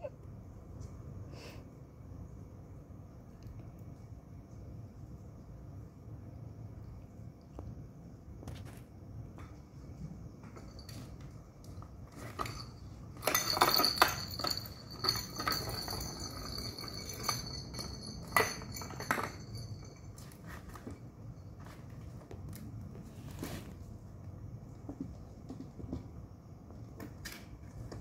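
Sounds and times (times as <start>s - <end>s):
plastic balls rolling and clattering: 11.6s - 22.0s.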